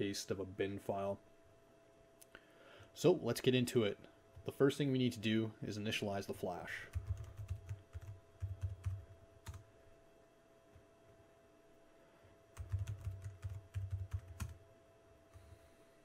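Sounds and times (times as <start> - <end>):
typing on computer keyboard: 6.9 - 9.6, 12.6 - 14.6.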